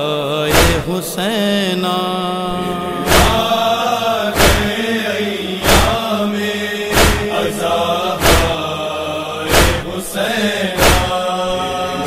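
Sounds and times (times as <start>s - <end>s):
lament being chanted: 0.0s - 12.0s
chest-beating slaps: 0.5s - 0.9s, 3.1s - 3.5s, 4.4s - 4.8s, 5.6s - 6.0s, 6.9s - 7.5s, 8.2s - 8.6s, 9.5s - 9.9s, 10.8s - 11.2s
steady held tone: 2.0s - 10.0s.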